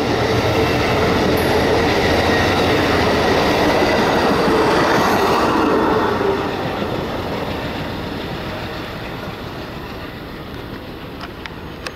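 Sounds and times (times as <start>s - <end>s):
train wheels rolling on rails: 0.0s - 11.9s.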